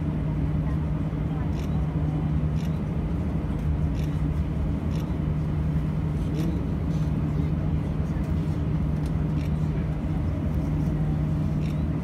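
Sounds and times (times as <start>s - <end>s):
airliner cabin hum: 0.0s - 12.0s.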